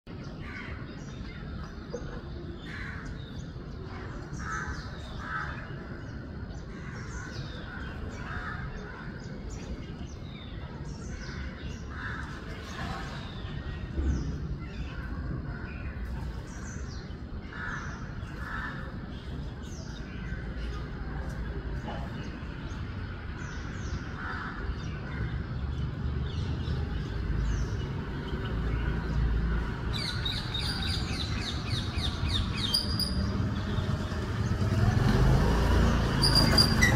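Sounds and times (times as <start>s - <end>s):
small birds chirping: 0.1s - 36.9s.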